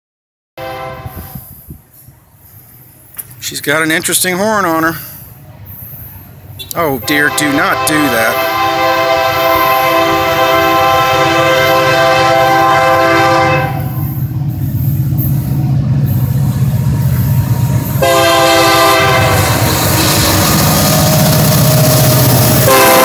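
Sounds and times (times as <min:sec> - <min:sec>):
locomotive air horn blast: 0:00.6 - 0:01.7, 0:06.6 - 0:14.9, 0:16.3 - 0:23.0
train rumble: 0:00.6 - 0:23.0.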